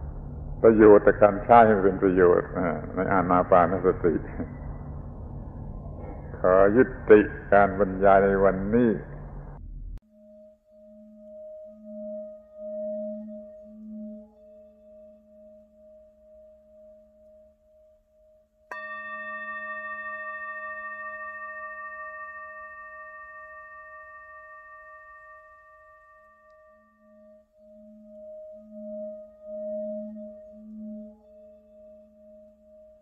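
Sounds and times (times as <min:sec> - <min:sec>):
low wavering pulsing hum: 0:00.0 - 0:17.5, 0:18.7 - 0:33.0
singing bowl struck and ringing: 0:10.1 - 0:33.0.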